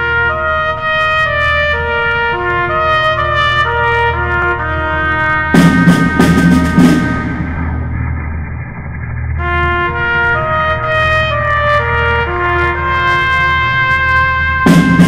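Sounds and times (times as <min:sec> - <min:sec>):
trumpet melody: 0:00.0 - 0:07.9, 0:09.4 - 0:15.0
steady bass: 0:00.0 - 0:15.0
loud cymbal crashes: 0:05.5 - 0:08.6, 0:14.6 - 0:15.0.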